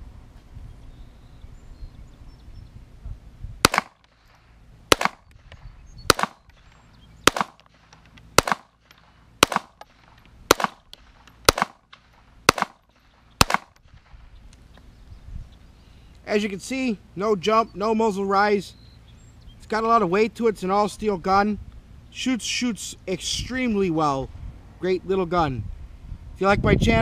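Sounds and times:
pistol shots: 3.6 - 4.3, 4.9 - 14.2.

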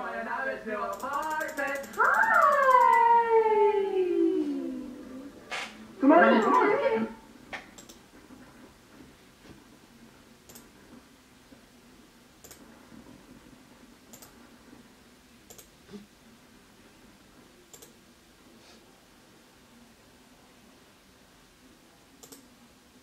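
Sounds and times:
low room noise: 0.0 - 23.0
computer mouse clicks: 0.9 - 2.9, 7.8 - 8.0, 10.4 - 10.7, 12.4 - 12.6, 14.1 - 14.4, 15.5 - 15.7, 17.7 - 18.0, 22.2 - 22.5.

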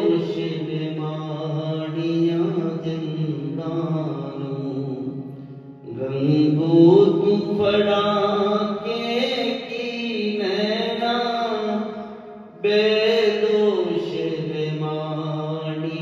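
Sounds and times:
harmonium: 0.0 - 16.0
man singing devotional melody: 0.0 - 16.0
singer breathing: 5.2 - 5.8.

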